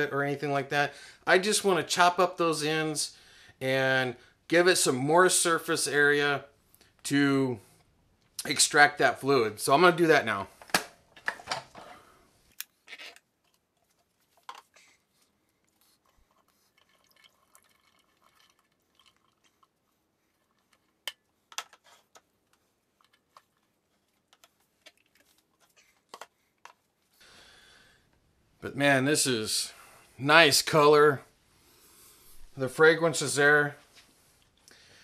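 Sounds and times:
water dripping: 0:16.7 - 0:19.7.

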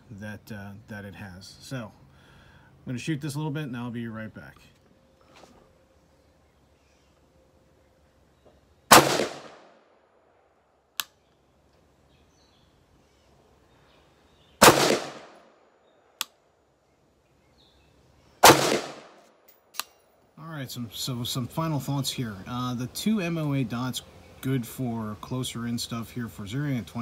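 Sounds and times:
rifle shots: 0:08.9 - 0:09.8, 0:14.6 - 0:15.5, 0:18.4 - 0:19.2
faint sharp clicks: 0:11.0 - 0:11.4, 0:16.2 - 0:16.4.

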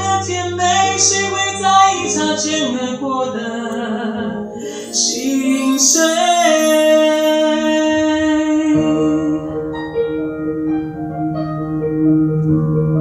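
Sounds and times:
sustained keyboard chords: 0:00.0 - 0:11.6
man singing: 0:04.4 - 0:09.2.

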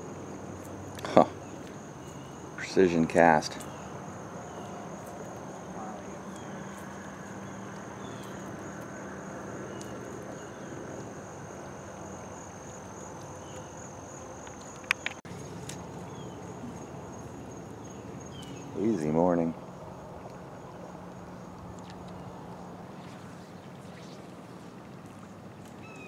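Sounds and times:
crickets trilling: 0:00.0 - 0:26.0
sharp clicks: 0:14.4 - 0:15.2
faint bird chirps: 0:25.8 - 0:26.0.

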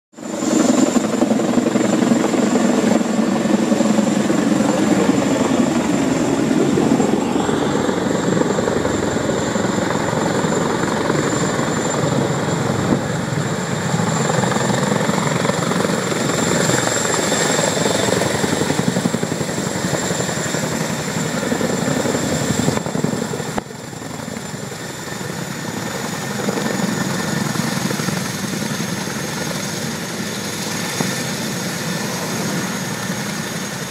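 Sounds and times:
helicopter high whine: 0:00.1 - 0:33.9
helicopter rotors beating: 0:00.2 - 0:33.9.

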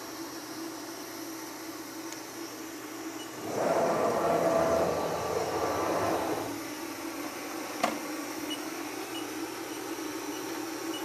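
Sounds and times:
steady machine hum: 0:00.3 - 0:09.6
gantry motors whining: 0:03.3 - 0:06.7.

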